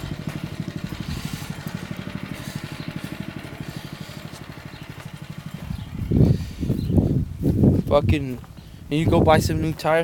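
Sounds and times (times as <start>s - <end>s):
go-kart engine idling: 0.0s - 7.0s.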